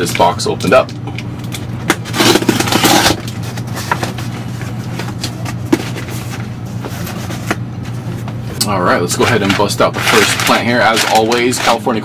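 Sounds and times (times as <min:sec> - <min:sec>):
packing tape tearing scrape: 0:02.0 - 0:04.2, 0:09.2 - 0:11.9.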